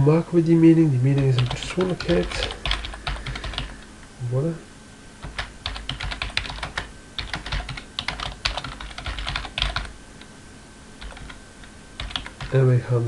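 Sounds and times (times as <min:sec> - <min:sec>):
typing on computer keyboard: 0:01.2 - 0:03.7, 0:05.2 - 0:09.9, 0:11.0 - 0:11.4, 0:12.0 - 0:12.6.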